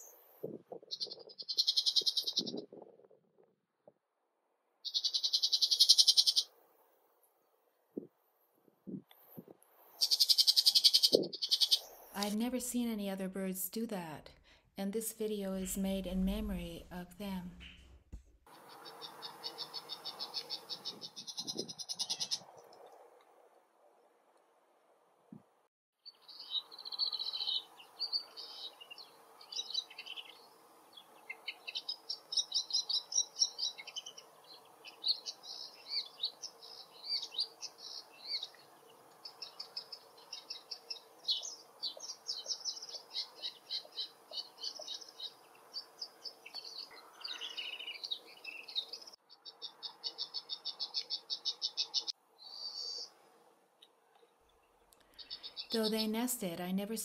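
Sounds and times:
birds chattering: 0.9 - 2.7, 4.8 - 6.5, 10.0 - 12.0, 18.5 - 22.6, 26.1 - 53.1, 55.0 - 56.2.

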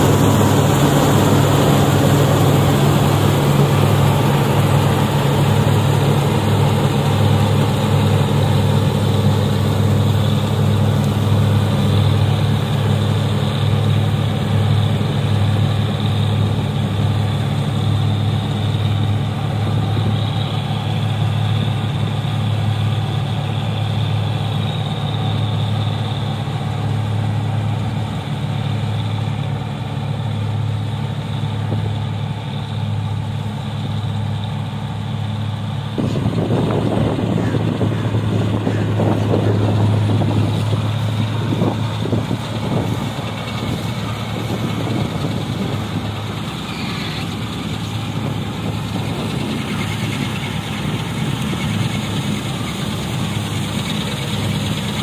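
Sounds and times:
combine harvester engine and threshing: 0.0 - 55.0.

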